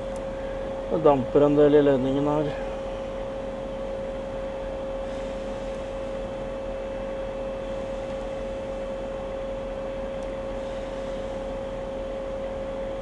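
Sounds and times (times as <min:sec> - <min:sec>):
low mains hum: 0:00.0 - 0:13.0
mid-pitched whine: 0:00.0 - 0:13.0.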